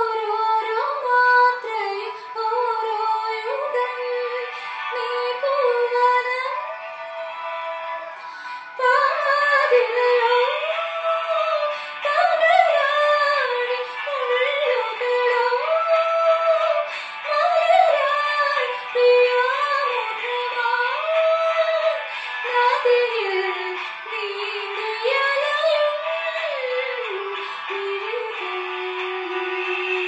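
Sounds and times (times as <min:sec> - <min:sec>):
woman singing solo: 0:00.0 - 0:30.0
singer breathing: 0:02.1 - 0:02.4, 0:04.5 - 0:04.9, 0:08.2 - 0:08.8, 0:11.7 - 0:12.0, 0:16.8 - 0:17.3, 0:22.0 - 0:22.5, 0:23.8 - 0:24.0, 0:27.4 - 0:27.7.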